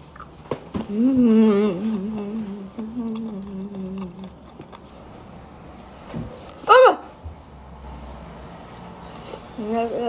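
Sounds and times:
woman humming: 0:00.9 - 0:04.4.

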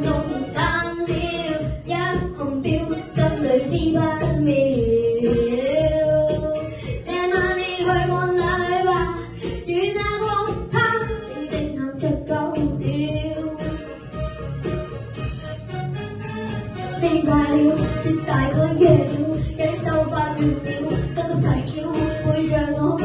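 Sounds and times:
boy singing into a microphone: 0:00.0 - 0:13.9, 0:17.0 - 0:23.0
pop backing track: 0:00.0 - 0:23.0.

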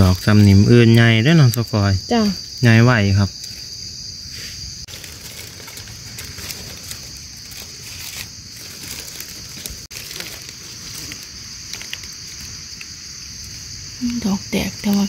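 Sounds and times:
dry leaves crackling: 0:00.0 - 0:15.0
high-pitched insect drone: 0:00.0 - 0:15.0.

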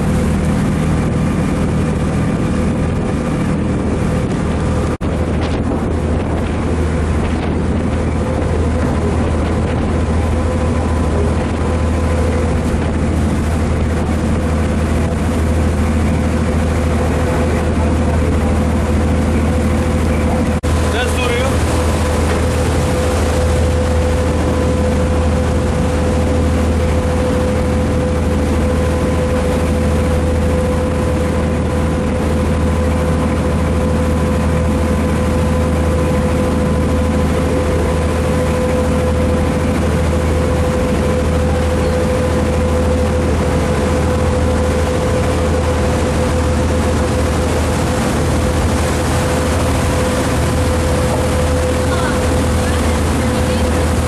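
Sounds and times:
boat engine humming: 0:00.0 - 0:54.0.

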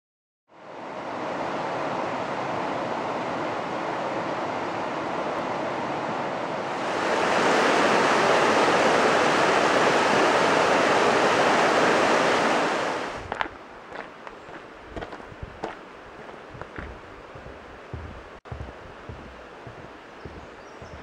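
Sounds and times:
water rushing over rocks: 0:06.7 - 0:13.3.

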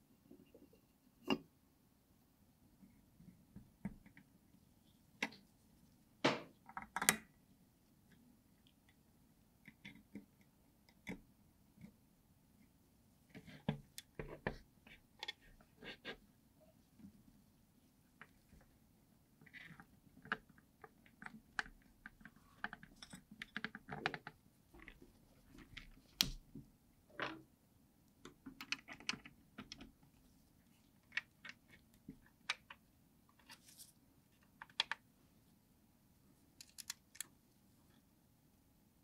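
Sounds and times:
small clicks and taps of parts: 0:06.6 - 0:07.3, 0:34.4 - 0:35.0, 0:36.6 - 0:37.3.

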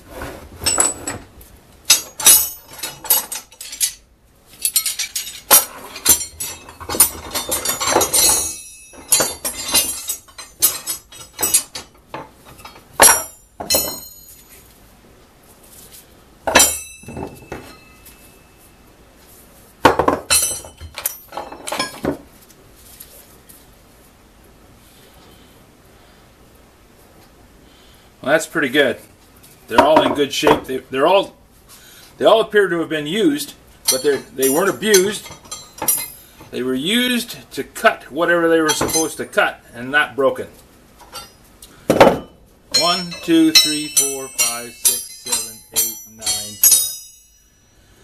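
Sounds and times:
metal drill bits clinking: 0:01.9 - 0:04.0, 0:04.6 - 0:11.9, 0:12.5 - 0:14.6, 0:20.3 - 0:22.0, 0:33.9 - 0:36.6, 0:38.6 - 0:39.3, 0:41.0 - 0:41.4, 0:42.7 - 0:47.5.

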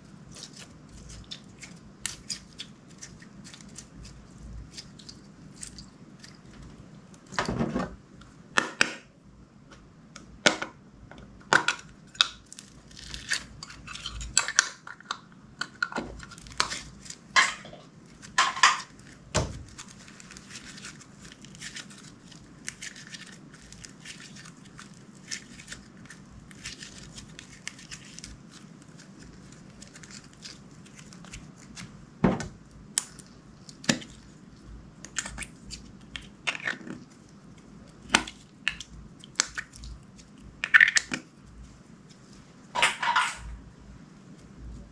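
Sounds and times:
slime popping and crackling: 0:00.3 - 0:07.3, 0:11.5 - 0:32.0, 0:35.0 - 0:41.2.

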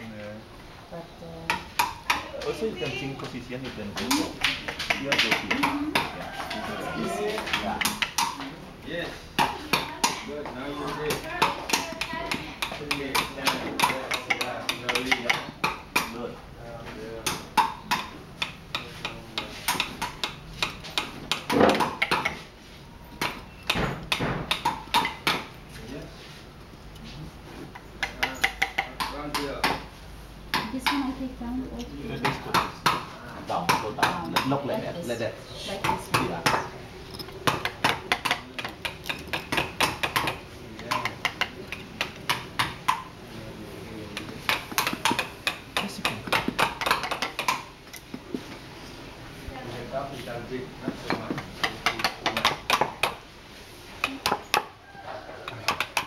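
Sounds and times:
mallet tapping chisel: 0:01.5 - 0:02.3, 0:04.0 - 0:06.1, 0:07.3 - 0:08.4, 0:11.1 - 0:16.2, 0:17.2 - 0:22.4, 0:23.2 - 0:25.5, 0:27.7 - 0:29.9, 0:30.5 - 0:31.1, 0:33.7 - 0:34.6, 0:35.8 - 0:43.1, 0:44.1 - 0:48.3, 0:50.8 - 0:53.2, 0:54.0 - 0:54.7, 0:55.5 - 0:56.0.

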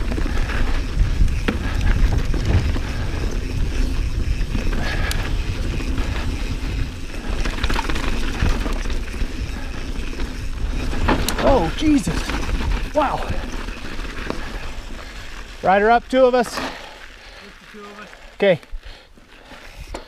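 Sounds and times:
bike clicks and rattles: 0:00.0 - 0:20.0
bike tyres rumbling on dirt: 0:00.0 - 0:20.0.

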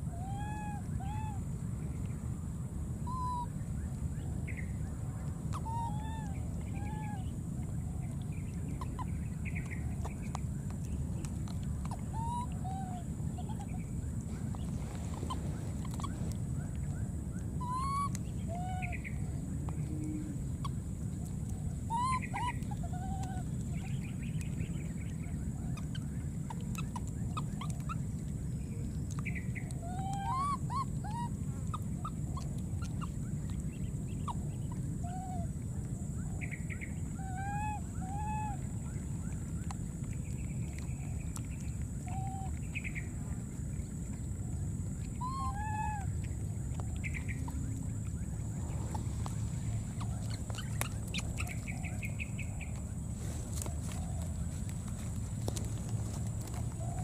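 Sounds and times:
steady low rumble: 0:00.0 - 0:57.0
baby macaques squeaky coo calls: 0:00.2 - 0:01.4, 0:03.1 - 0:03.5, 0:05.5 - 0:07.3, 0:11.8 - 0:13.8, 0:17.6 - 0:19.1, 0:21.9 - 0:23.9, 0:25.8 - 0:28.0, 0:29.7 - 0:32.2, 0:35.0 - 0:35.5, 0:37.2 - 0:38.6, 0:42.1 - 0:42.6, 0:45.2 - 0:46.1, 0:48.8 - 0:52.0.

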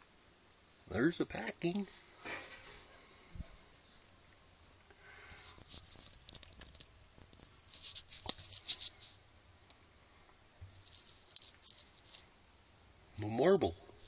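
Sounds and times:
scratching and rustling: 0:01.8 - 0:03.9, 0:05.1 - 0:12.3, 0:13.2 - 0:14.0.

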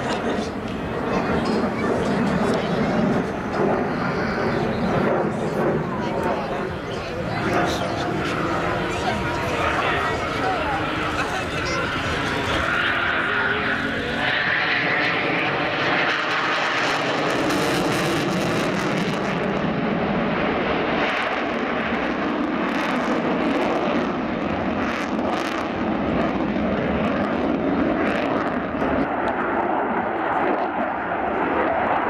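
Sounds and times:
jet engines with afterburners: 0:00.0 - 0:32.0.

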